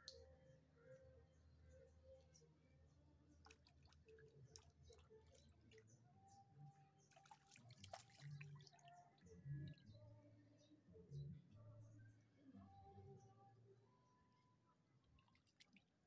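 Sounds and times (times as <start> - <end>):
water dripping and splashing: 3.4 - 5.8, 7.1 - 8.9.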